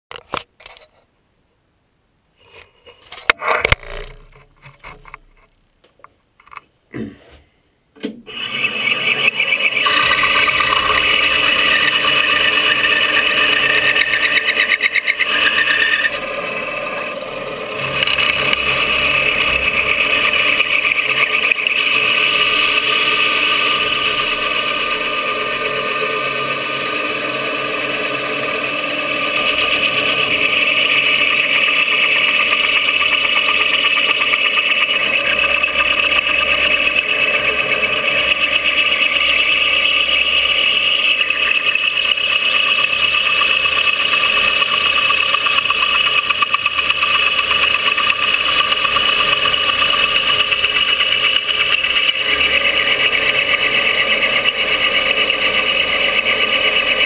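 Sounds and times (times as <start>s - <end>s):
benchtop mill cutting: 8.3s - 57.0s.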